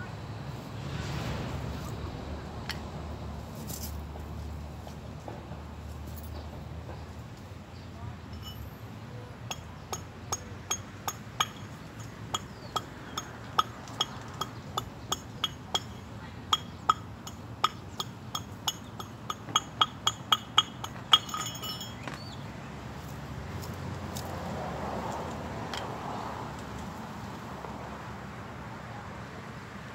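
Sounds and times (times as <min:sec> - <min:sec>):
sharp metallic taps: 0:09.5 - 0:22.3.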